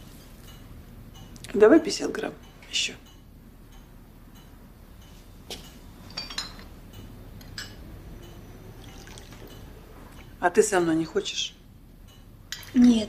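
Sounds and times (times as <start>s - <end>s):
glassware clinking: 4.4s - 10.3s, 12.0s - 13.0s.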